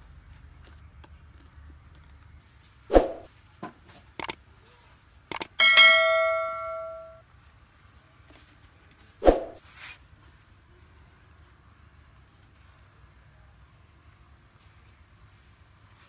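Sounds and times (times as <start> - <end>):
mouse clicks: 5.3 - 5.5
bell ding: 5.6 - 7.2.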